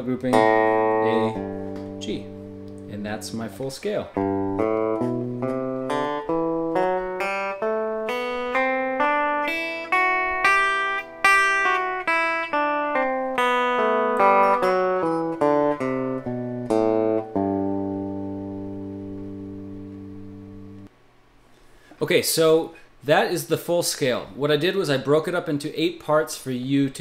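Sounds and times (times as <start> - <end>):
fingerpicked electric guitar scale: 0.0 - 20.9.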